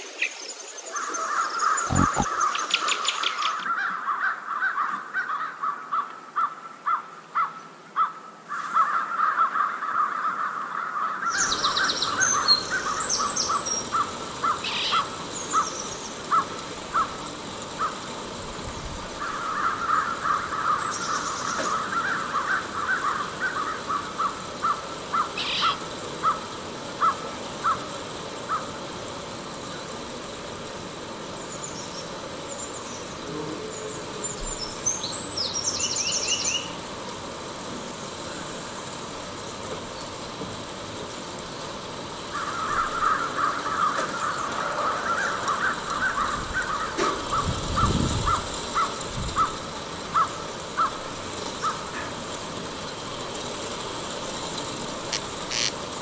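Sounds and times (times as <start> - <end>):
birds chirping high: 0.0 - 3.8, 11.2 - 18.0, 19.2 - 26.4, 31.3 - 36.8, 55.1 - 55.7
bird repeated calls: 0.2 - 5.8, 11.2 - 17.2, 19.2 - 27.9, 55.1 - 55.8.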